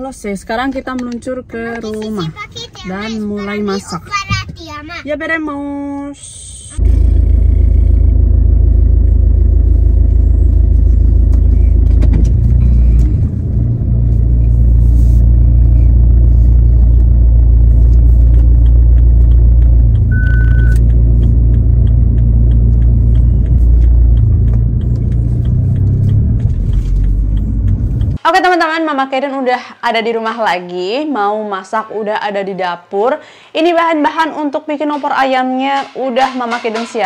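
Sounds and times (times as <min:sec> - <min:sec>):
car engine and road rumble: 0:00.0 - 0:28.3
short beep: 0:20.1 - 0:20.9.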